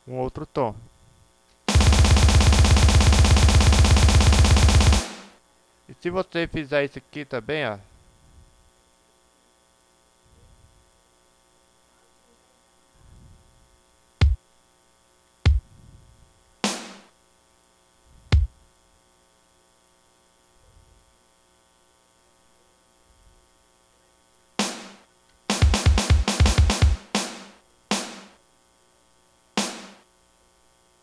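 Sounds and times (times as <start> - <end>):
faint mains hum: 0.0 - 31.0
kick drum thumps: 1.7 - 5.3, 15.5 - 15.7, 18.3 - 18.6, 24.6 - 28.4
snare drum cracks: 4.9 - 5.4, 16.6 - 17.1, 24.6 - 28.4, 29.6 - 30.0.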